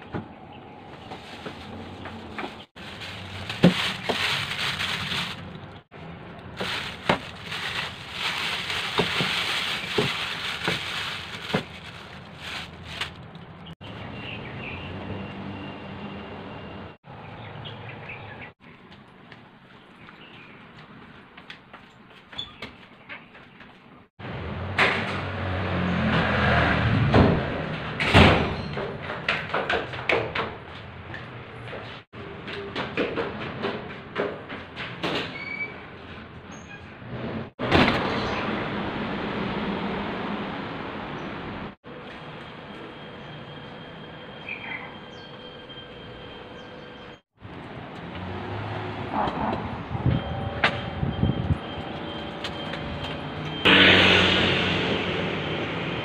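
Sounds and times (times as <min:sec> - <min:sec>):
plastic bag crinkling: 0:01.2 - 0:05.8, 0:06.5 - 0:13.7
door shutting with a bang: 0:27.1 - 0:28.8.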